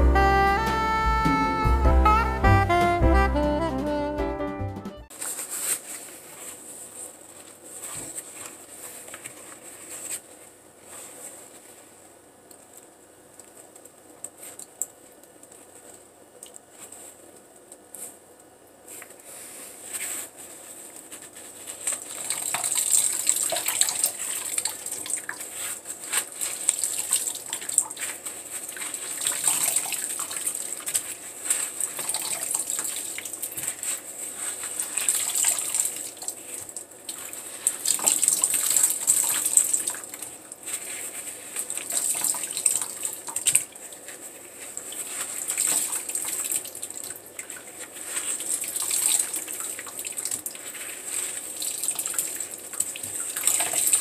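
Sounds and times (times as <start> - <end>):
water dripping and splashing: 21.9 - 25.6, 26.4 - 33.7, 34.9 - 40.3, 41.6 - 44.0, 44.8 - 54.0.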